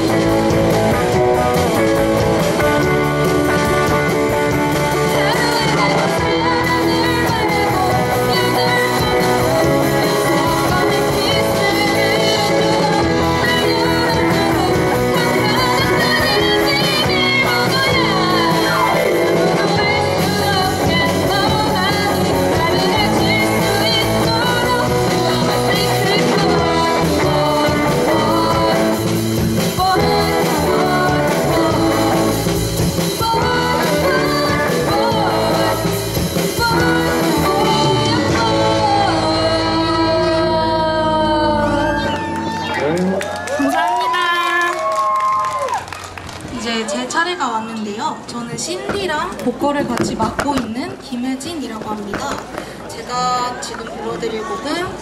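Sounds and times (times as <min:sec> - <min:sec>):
woman singing: 0:00.0 - 0:02.6, 0:04.8 - 0:42.4
drum kit: 0:00.0 - 0:40.8
electric guitars: 0:00.0 - 0:46.6.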